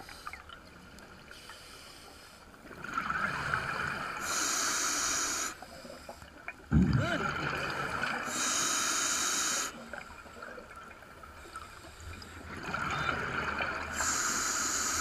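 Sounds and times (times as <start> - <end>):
regulator breath hiss and bubbling: 3.2 - 10.4, 11.4 - 15.0.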